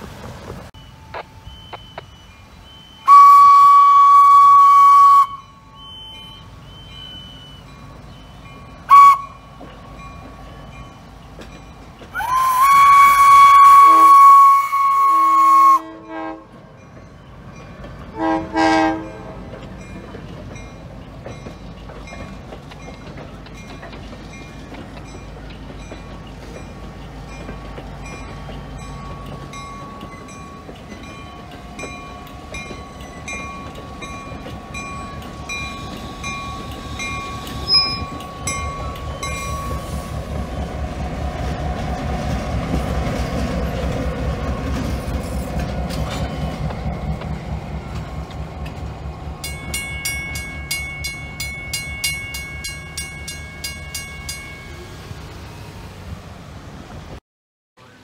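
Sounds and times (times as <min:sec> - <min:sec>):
diesel locomotive engine rumble: 0:00.0 - 0:57.2, 0:57.8 - 0:58.0
passenger train rolling past: 0:00.0 - 0:57.2
crossing bell ringing: 0:00.7 - 0:04.0, 0:05.0 - 0:12.2, 0:16.0 - 0:41.6, 0:45.4 - 0:55.8
fast high-pitched crossing bell: 0:49.4 - 0:54.8.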